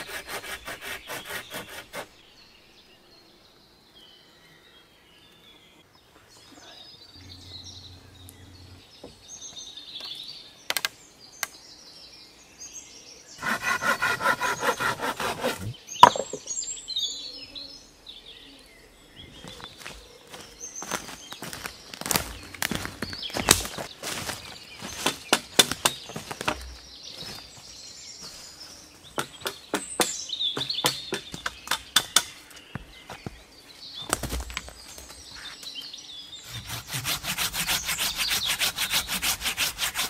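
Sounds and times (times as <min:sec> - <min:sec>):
saw cutting wood: 0:00.0 - 0:02.1, 0:13.4 - 0:16.3, 0:36.4 - 0:40.0
birds chirping: 0:00.0 - 0:40.0
sharp wooden knock: 0:15.2 - 0:16.5, 0:29.2 - 0:32.3.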